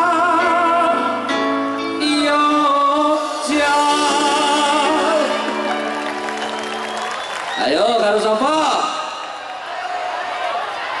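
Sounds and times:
man singing long notes: 0.0s - 1.4s, 2.0s - 5.7s
live band playing pop song: 0.0s - 9.2s.

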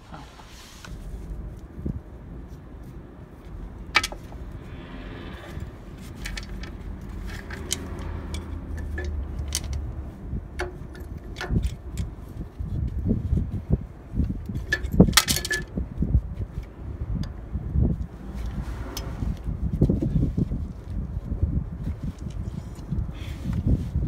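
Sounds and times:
steady low rumble: 0.0s - 24.0s
metal chain rattling and clinking: 5.9s - 12.1s, 14.5s - 15.7s.

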